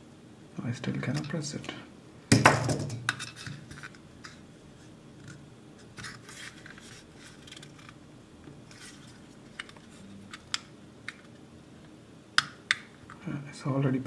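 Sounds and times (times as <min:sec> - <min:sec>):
plastic parts scraping and rubbing: 0:03.1 - 0:04.4, 0:05.2 - 0:08.0, 0:08.6 - 0:11.4.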